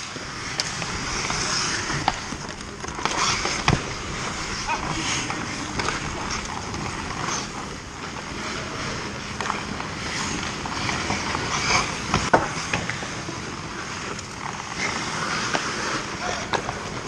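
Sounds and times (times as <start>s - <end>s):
skate blades scraping ice: 0.0s - 17.0s
hockey stick clicks: 0.4s - 4.4s, 5.1s - 7.6s.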